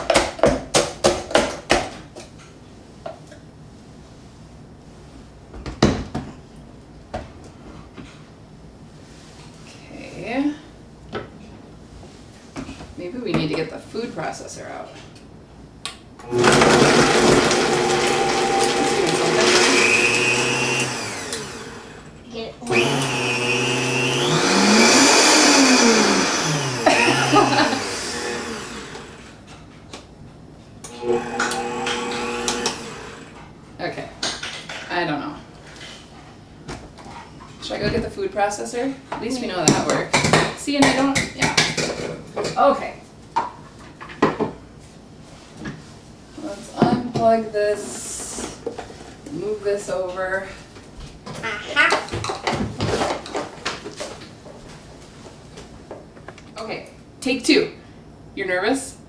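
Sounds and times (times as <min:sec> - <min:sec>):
blender motor running: 0:16.2 - 0:29.4, 0:30.9 - 0:33.4.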